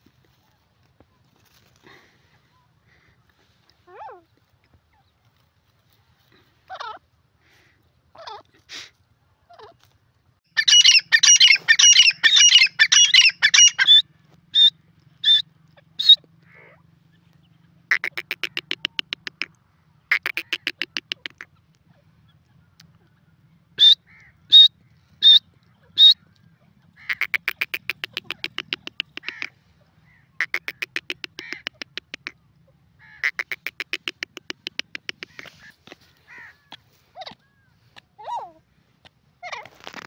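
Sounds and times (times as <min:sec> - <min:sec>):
francolin calling: 0:10.5 - 0:15.4, 0:23.8 - 0:25.4, 0:27.0 - 0:29.5, 0:33.1 - 0:37.5
rattling bird trills: 0:10.6 - 0:14.0.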